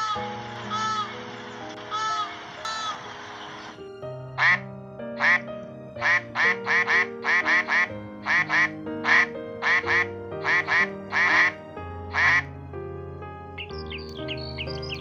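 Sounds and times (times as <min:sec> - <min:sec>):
duck quacking: 0:00.0 - 0:01.2, 0:01.9 - 0:03.0, 0:04.4 - 0:04.6, 0:05.2 - 0:12.5
background music with held notes: 0:00.0 - 0:15.0.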